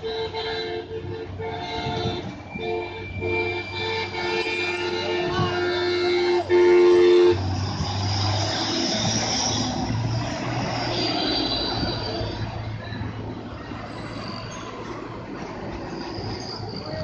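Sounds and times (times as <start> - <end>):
two-tone air horn: 0.0 - 9.8
truck diesel engine passing: 0.0 - 17.0.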